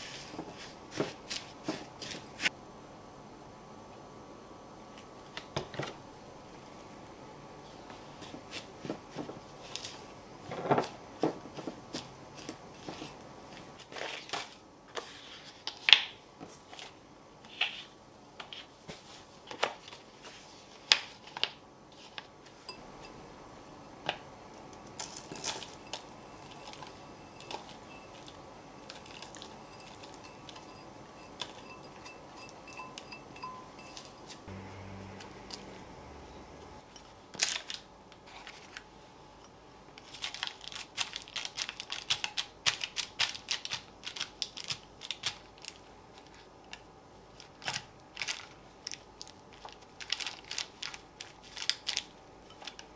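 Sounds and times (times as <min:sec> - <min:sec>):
spatula scraping in glass bowl: 0:25.2 - 0:34.4
metal ring clinking: 0:29.1 - 0:34.4.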